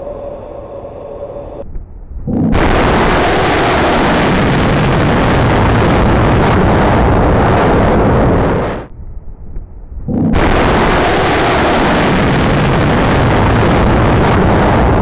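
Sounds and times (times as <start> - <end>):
rocket motor roar: 10.1 - 15.0.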